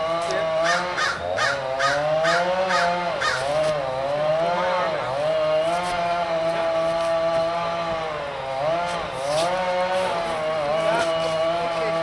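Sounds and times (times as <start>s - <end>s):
motor engine running: 0.0s - 12.0s
short harsh calls: 0.6s - 3.8s.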